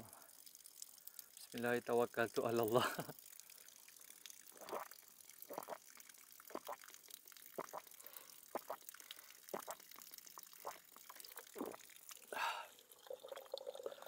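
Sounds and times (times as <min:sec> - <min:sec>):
person gulping water: 0:04.4 - 0:14.0
water sloshing in plastic bottle: 0:05.5 - 0:05.8.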